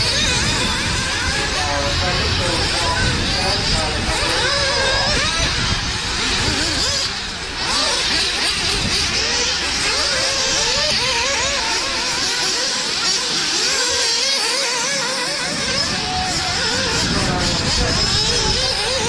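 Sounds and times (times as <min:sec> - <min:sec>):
rc buggy engines racing: 0:00.0 - 0:19.0.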